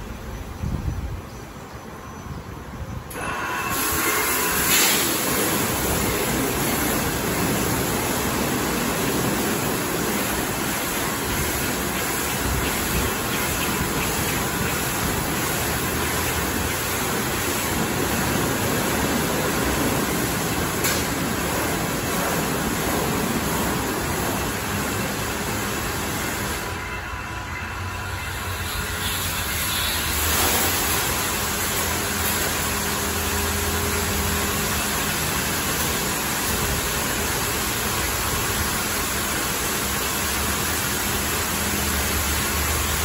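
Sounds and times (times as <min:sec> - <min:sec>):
water jets spraying car: 0:03.1 - 0:43.0.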